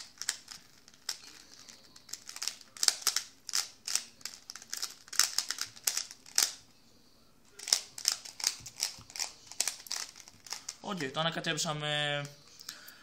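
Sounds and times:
puzzle cube clicking: 0:00.0 - 0:06.6, 0:07.6 - 0:10.8.

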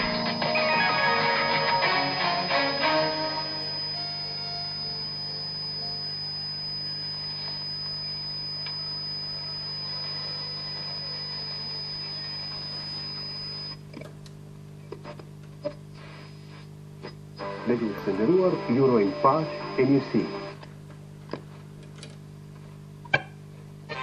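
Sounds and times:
high radio whistle: 0:00.0 - 0:13.8, 0:17.4 - 0:20.6
radio crackles: 0:00.0 - 0:14.0, 0:14.9 - 0:24.0
radio hum with interference tones: 0:00.0 - 0:24.0.

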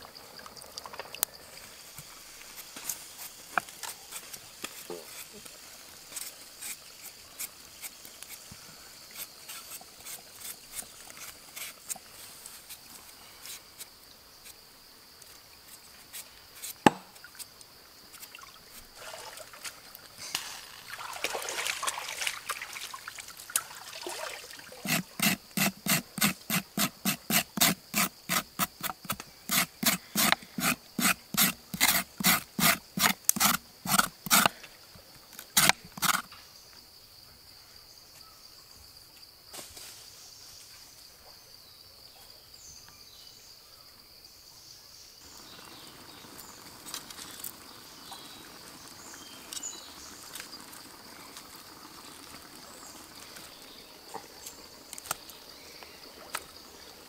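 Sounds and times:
high insect drone: 0:00.0 - 0:57.0
knife scraping on wooden board: 0:24.8 - 0:34.5, 0:35.6 - 0:36.2.

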